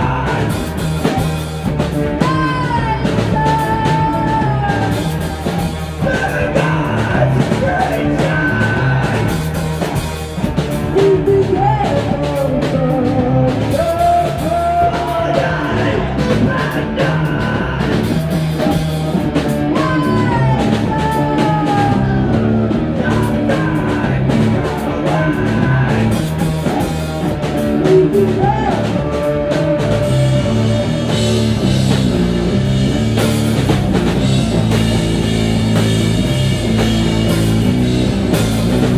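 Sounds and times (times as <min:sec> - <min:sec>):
drum kit: 0:00.0 - 0:38.9
electric guitar: 0:00.0 - 0:38.9
woman singing: 0:02.2 - 0:05.3, 0:11.0 - 0:17.7, 0:19.6 - 0:26.1.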